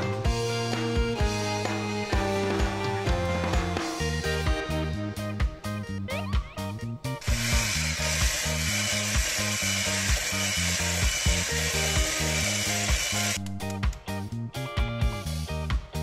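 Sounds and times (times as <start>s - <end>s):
electric hand mixer running: 7.2s - 13.4s.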